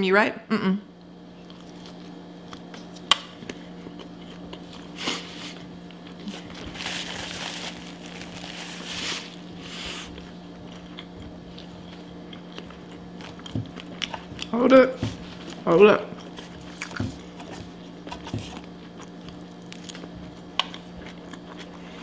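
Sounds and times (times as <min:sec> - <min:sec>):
steady low hum: 0:00.0 - 0:22.0
napkin rustling: 0:06.3 - 0:09.4
chewing and mouth sounds: 0:10.0 - 0:14.6, 0:15.4 - 0:22.0.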